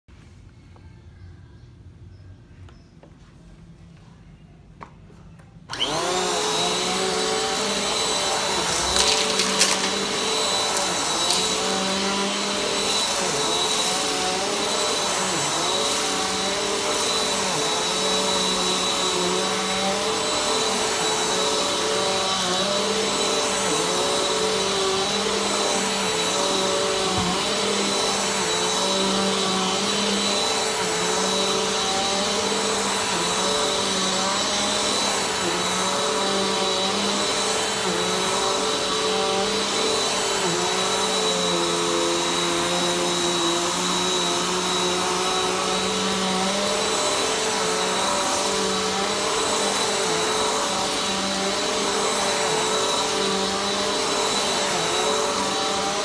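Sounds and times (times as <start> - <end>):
vacuum cleaner on carpet: 5.7 - 56.0.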